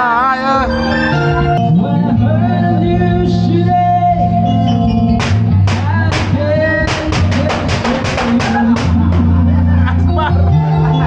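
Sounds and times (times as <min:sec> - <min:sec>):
keyboard chords: 0:00.0 - 0:11.0
drum hits: 0:05.2 - 0:09.4.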